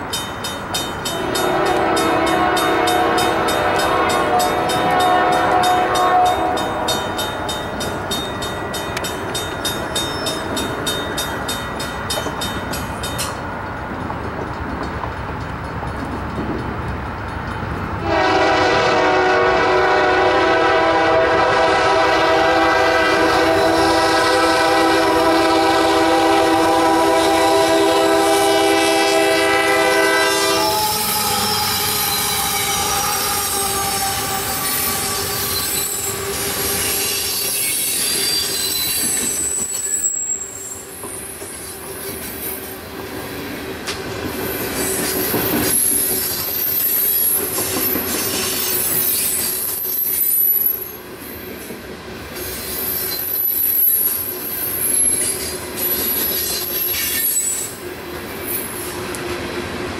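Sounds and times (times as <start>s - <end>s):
train wheels squealing and clattering: 0.0s - 17.7s, 30.2s - 59.4s
locomotive air horn: 1.1s - 7.2s, 18.0s - 38.5s.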